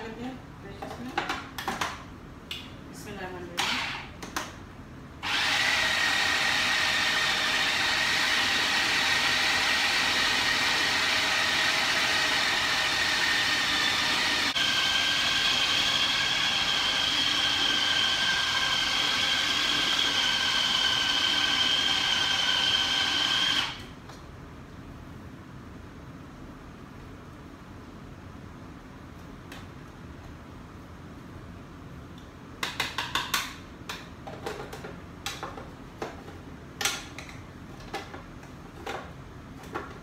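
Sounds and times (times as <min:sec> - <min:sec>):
food processor motor whine: 0:05.2 - 0:23.9.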